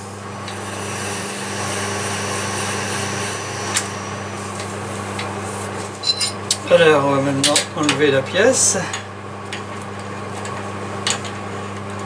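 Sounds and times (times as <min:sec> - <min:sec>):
lathe motor hum: 0:00.0 - 0:05.8.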